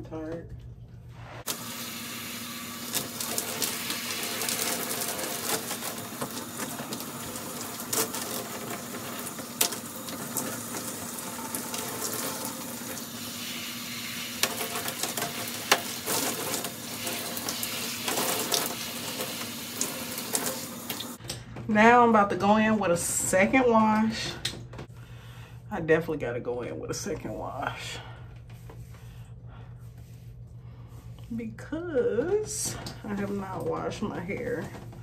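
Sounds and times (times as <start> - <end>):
shower water spraying: 1.2 - 21.2.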